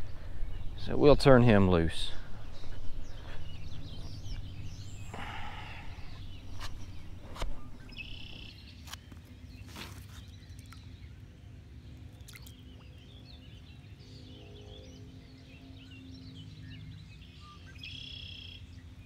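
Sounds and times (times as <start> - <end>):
low steady rumble: 0.0 - 8.5
bird chirps: 2.0 - 11.0.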